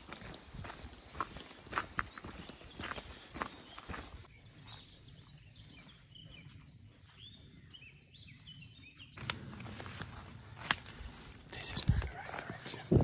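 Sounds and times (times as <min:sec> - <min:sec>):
small birds chirping and whistling: 0:00.0 - 0:09.3
low steady outdoor background: 0:00.0 - 0:13.0.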